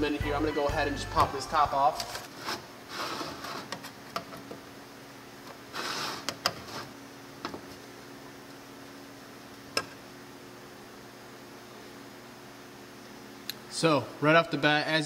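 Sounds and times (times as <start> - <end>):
short scrape: 2.3 - 3.7, 5.7 - 7.0.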